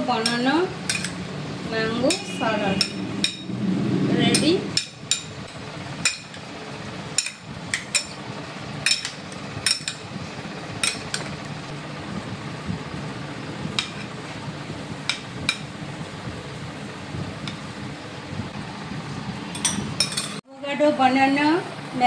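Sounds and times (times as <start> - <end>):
steady low hum: 0.0 - 22.0
spoons clinking on ceramic bowl: 19.6 - 20.4.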